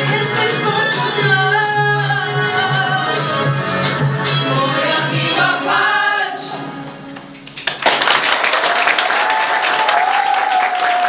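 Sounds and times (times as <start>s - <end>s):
audience applause: 7.4s - 11.0s.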